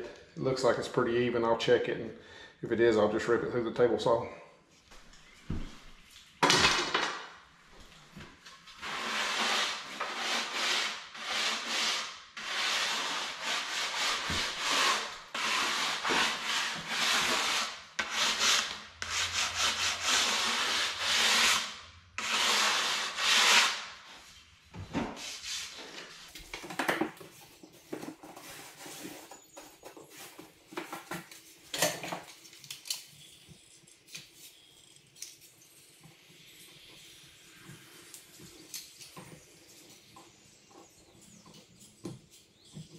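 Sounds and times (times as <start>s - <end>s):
sanding a wooden board: 8.8s - 23.8s.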